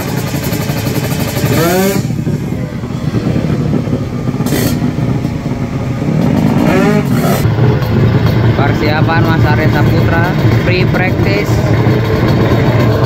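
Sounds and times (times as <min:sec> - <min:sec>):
motorcycle engine revving hard: 0:00.0 - 0:13.0.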